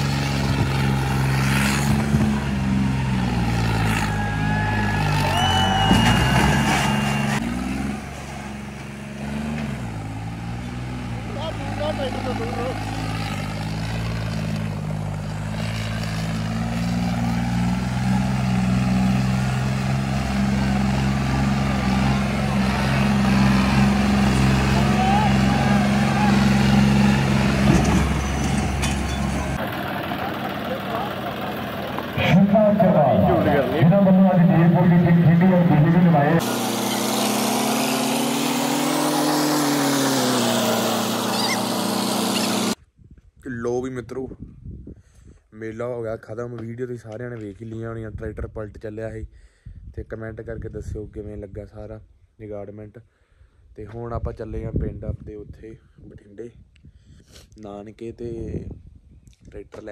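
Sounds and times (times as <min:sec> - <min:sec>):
tractor diesel engine running hard: 0:00.0 - 0:42.8.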